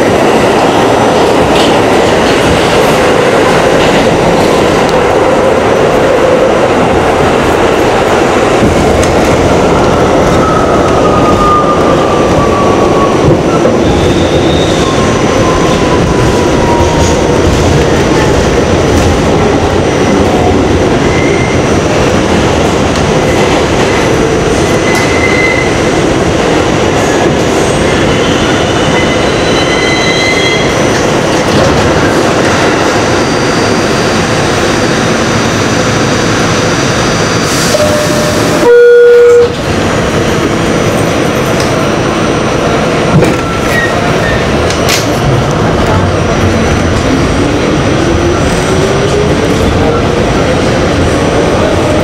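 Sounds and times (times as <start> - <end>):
subway car running through tunnel: 0.0 - 52.0
short loud tone: 37.8 - 39.6.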